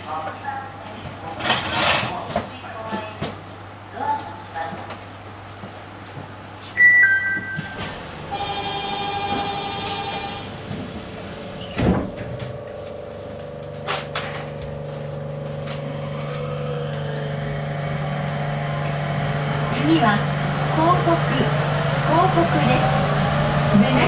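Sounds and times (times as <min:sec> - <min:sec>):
short electronic chime: 0:06.8 - 0:08.1
departure signal tone: 0:06.8 - 0:10.6
train doors shutting thud: 0:07.4 - 0:12.7
train electric drive hum: 0:07.4 - 0:24.0.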